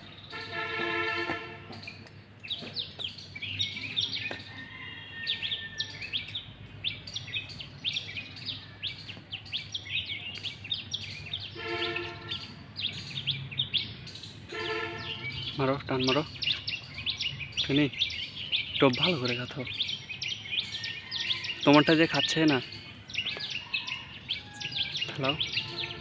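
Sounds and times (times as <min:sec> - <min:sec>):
small birds chirping: 0:00.0 - 0:26.0
vehicle horn held note: 0:00.4 - 0:01.8, 0:11.6 - 0:12.4, 0:14.5 - 0:15.3.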